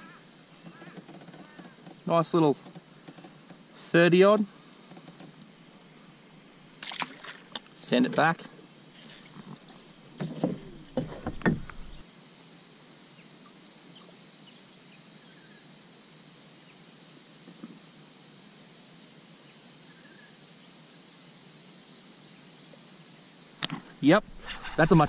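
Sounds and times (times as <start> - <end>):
paddle knocking against kayak: 9.6 - 12.0, 23.6 - 25.0.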